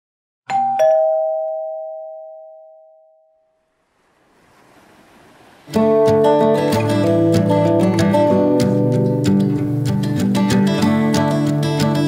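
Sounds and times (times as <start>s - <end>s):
ding-dong doorbell chime: 0.5s - 3.6s
faint rising hiss: 3.6s - 8.5s
strummed acoustic guitar music: 5.6s - 12.0s.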